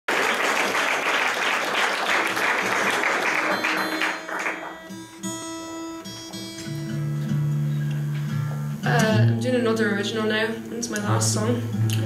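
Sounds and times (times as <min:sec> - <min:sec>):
audience applauding: 0:00.1 - 0:05.4
acoustic guitar single notes: 0:03.4 - 0:12.0.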